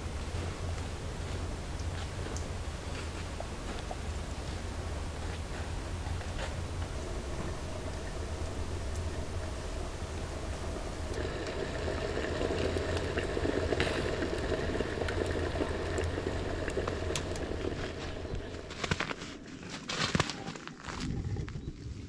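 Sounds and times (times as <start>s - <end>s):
wood fire crackling: 0.0s - 21.0s
rustling and clicks: 13.5s - 21.6s.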